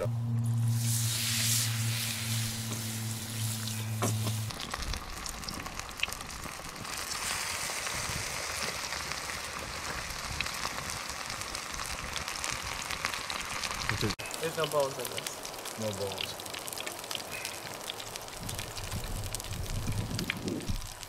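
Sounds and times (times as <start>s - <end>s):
low hum: 0.0s - 6.8s
fish frying in hot oil: 0.6s - 21.0s.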